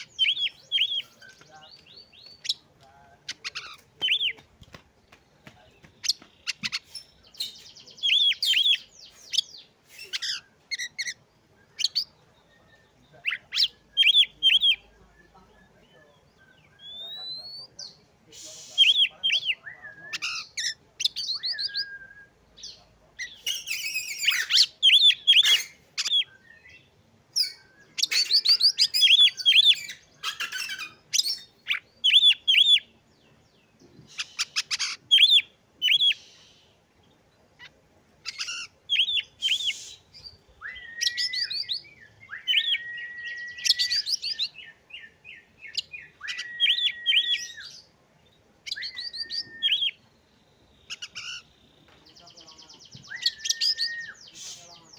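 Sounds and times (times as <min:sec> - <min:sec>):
bird singing chirps and whistles: 0:00.0 - 0:02.6, 0:06.5 - 0:32.9, 0:34.1 - 0:36.6, 0:38.3 - 0:47.9, 0:48.7 - 0:50.1, 0:52.1 - 0:54.9
rising bird whistle: 0:21.3 - 0:22.4, 0:39.0 - 0:44.5, 0:46.0 - 0:47.7, 0:48.7 - 0:50.0, 0:53.0 - 0:54.6.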